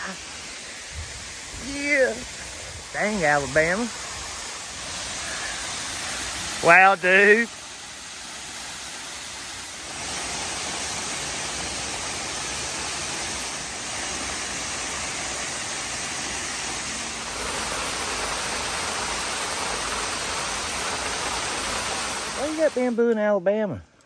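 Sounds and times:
waterfall splashing onto rocks: 0.0 - 23.3.

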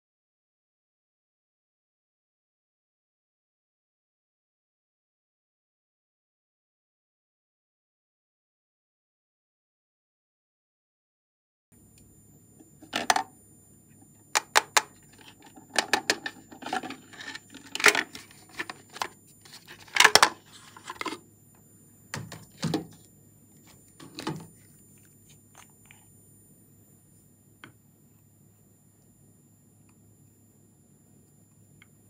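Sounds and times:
plastic parts clattering: 12.9 - 13.3, 14.4 - 21.2, 22.2 - 23.0, 24.0 - 24.5
plastic container clicks: 19.8 - 21.2.

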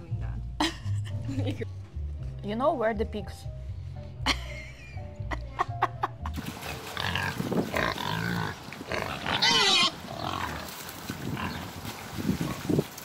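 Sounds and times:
pigs grunting: 6.6 - 12.8
pig squealing: 7.0 - 10.7.

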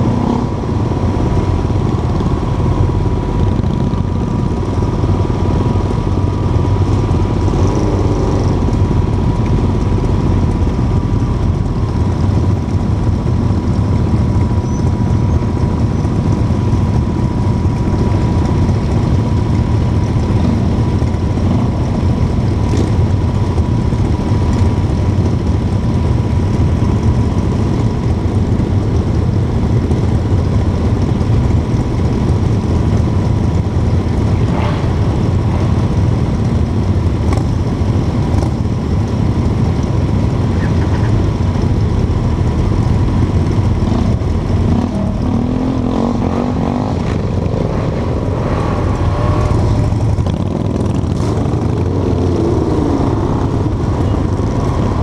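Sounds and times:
motorcycles idling: 0.0 - 55.0.

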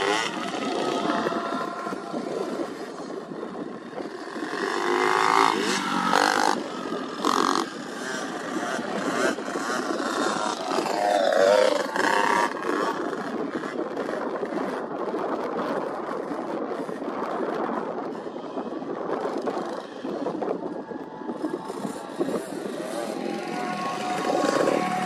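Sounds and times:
dirt bike engine revving: 0.0 - 3.2, 4.0 - 13.7, 19.5 - 25.0
rough noise: 18.1 - 25.0.

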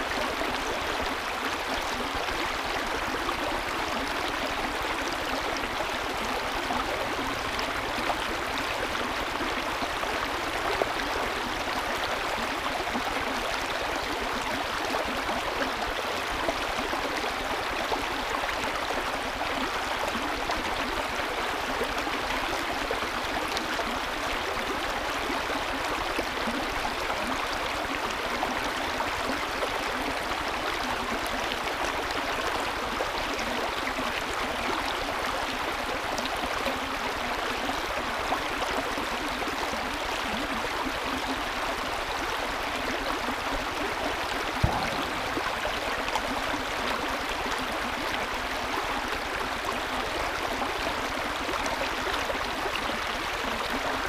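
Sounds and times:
creek rippling over stones: 0.0 - 54.0
brief knock: 44.6 - 45.5.

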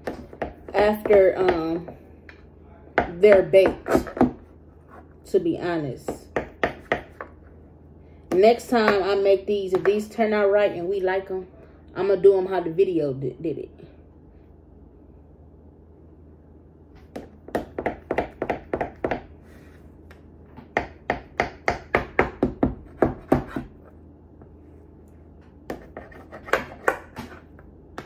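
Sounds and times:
knife chopping dough: 0.0 - 2.0, 3.0 - 4.5, 6.1 - 7.4, 17.0 - 19.3, 20.5 - 23.8, 25.6 - 28.0.

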